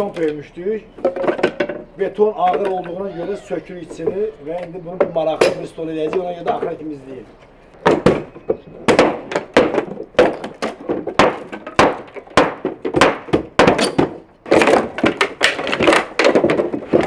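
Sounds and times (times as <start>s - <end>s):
hammer breaking concrete: 8.9s - 17.0s.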